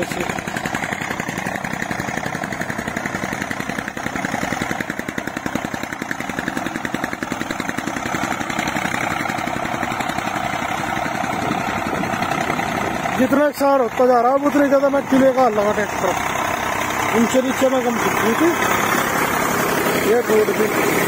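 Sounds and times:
tractor diesel engine chugging: 0:00.0 - 0:21.0.

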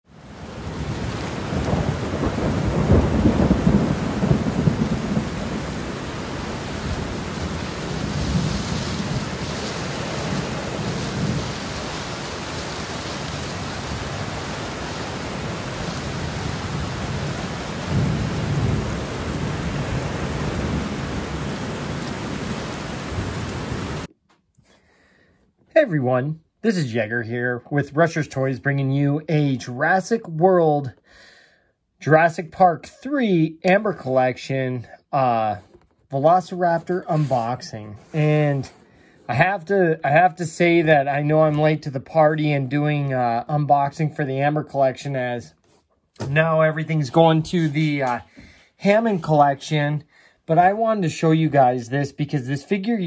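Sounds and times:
steady rain: 0:00.1 - 0:24.1, 0:35.2 - 0:45.5, 0:46.2 - 0:53.0
thunder rumbling: 0:00.3 - 0:24.1.

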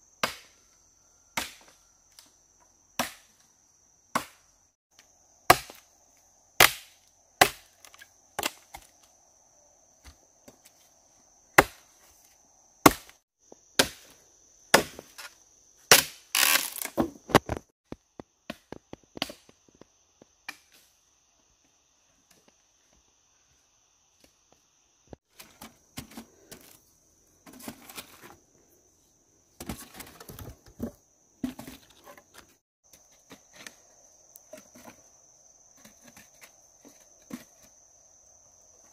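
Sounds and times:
rustling and scraping: 0:25.2 - 0:28.8, 0:29.5 - 0:37.9.

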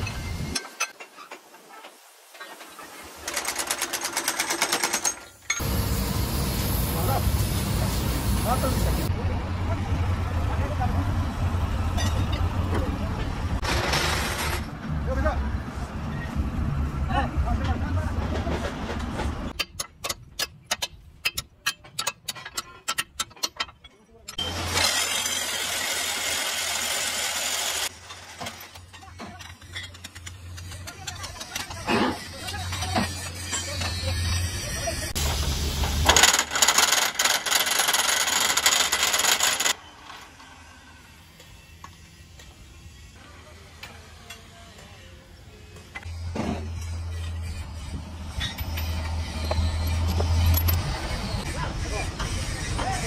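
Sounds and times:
workshop yard noise: 0:00.0 - 0:53.0
pneumatic impact wrench rattling: 0:03.2 - 0:05.7, 0:35.2 - 0:39.8
steel rods tapping metal: 0:19.6 - 0:24.4.

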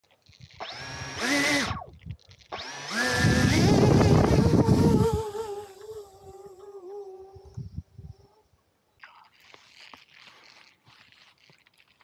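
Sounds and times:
electric motors with propellers whining: 0:00.6 - 0:07.5.

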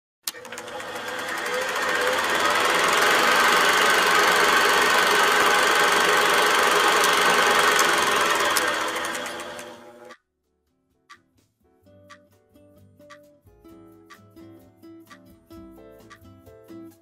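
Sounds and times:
film projector clattering: 0:00.3 - 0:10.2.

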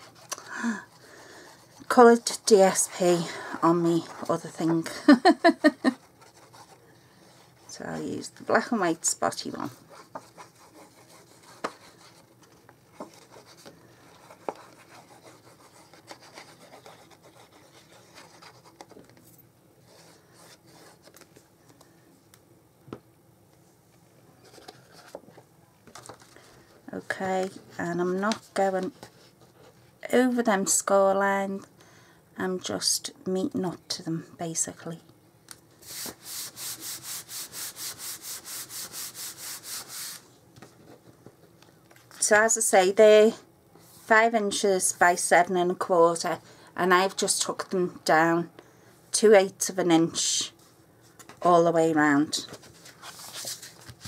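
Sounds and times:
rubbing on paper: 0:05.8 - 0:07.8, 0:09.6 - 0:12.3, 0:13.0 - 0:18.9, 0:35.8 - 0:40.2
paper rustling and scraping: 0:52.4 - 0:54.0.

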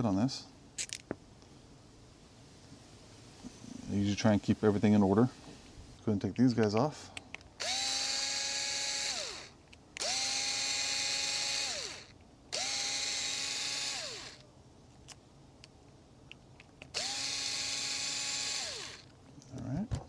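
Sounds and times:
electric screwdriver whining: 0:07.6 - 0:14.4, 0:16.8 - 0:19.1.

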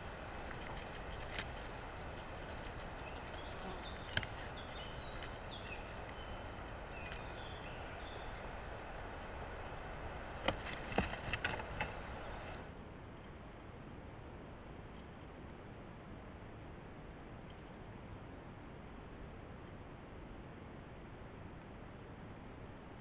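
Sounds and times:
songbird singing: 0:00.0 - 0:12.6
microphone hiss: 0:00.0 - 0:23.0.

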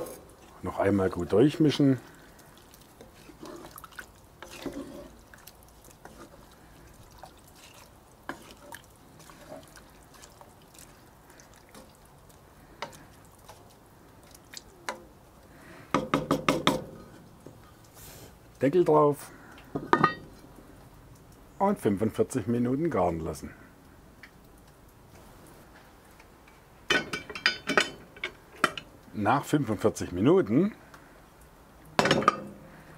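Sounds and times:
stew sloshing: 0:00.0 - 0:15.5.

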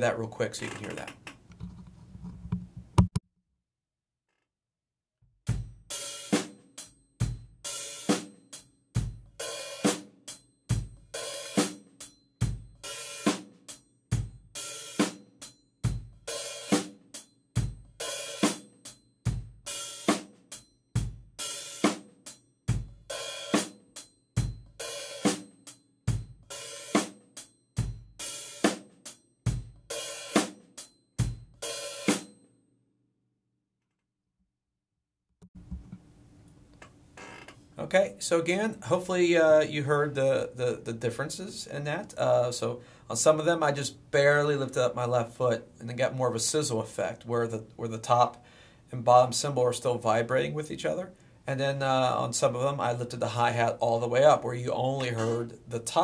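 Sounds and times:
drum kit groove: 0:05.5 - 0:32.3, 0:49.1 - 0:56.0.

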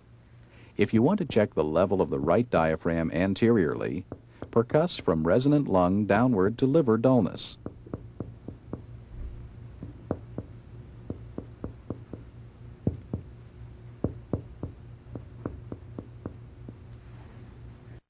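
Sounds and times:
finger tapping on chest: 0:09.8 - 0:13.3, 0:14.0 - 0:17.0.

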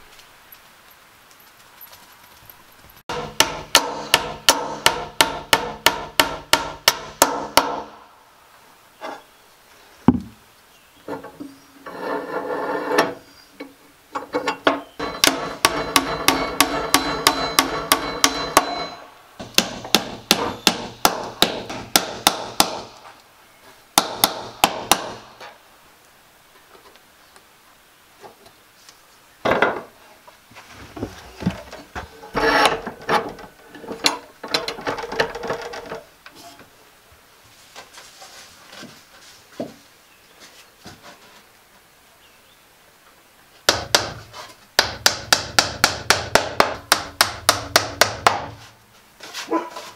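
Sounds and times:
scattered knocks: 0:14.7 - 0:22.9
hammer tapping nails: 0:15.0 - 0:23.0, 0:44.8 - 0:48.5.

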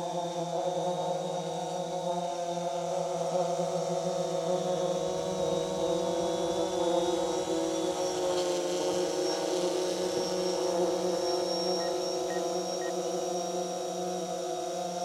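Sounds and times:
drone propellers humming: 0:05.0 - 0:14.6.

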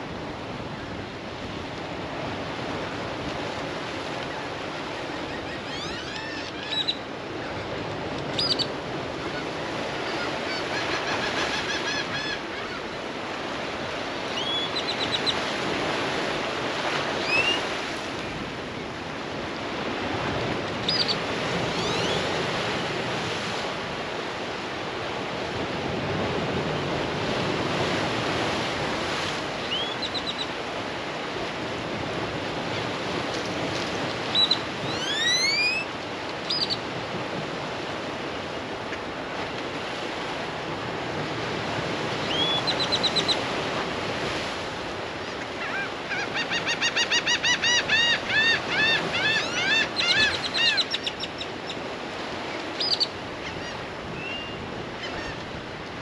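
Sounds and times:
surf washing on rocky shore: 0:00.0 - 0:56.0
gulls calling: 0:04.3 - 0:13.6, 0:20.8 - 0:22.5, 0:29.6 - 0:30.6, 0:34.0 - 0:36.9, 0:42.2 - 0:43.5, 0:45.0 - 0:55.6.

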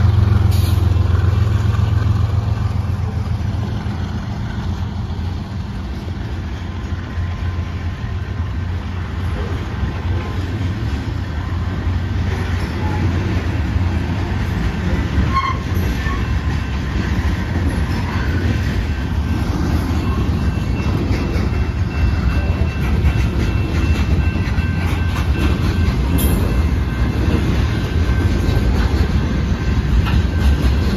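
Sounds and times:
diesel locomotives rumbling: 0:00.0 - 0:30.9
train wheels rumbling on rail: 0:00.0 - 0:30.9
high wheel squeal: 0:15.2 - 0:28.5.

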